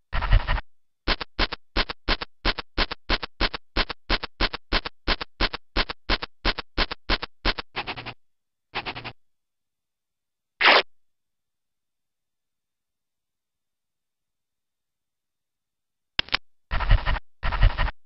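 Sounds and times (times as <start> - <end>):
cartoon dog scratching: 0.1 - 8.2, 8.8 - 9.2, 10.6 - 10.9, 16.2 - 18.0.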